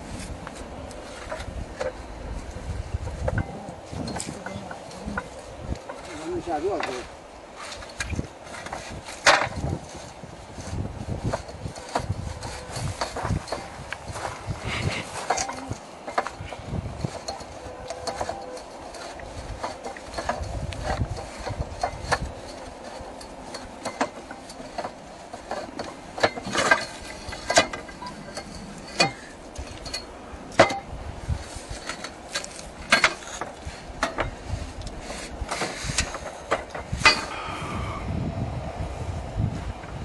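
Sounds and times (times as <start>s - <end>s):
knocks and clanks: 3.0s - 34.5s, 35.5s - 37.5s.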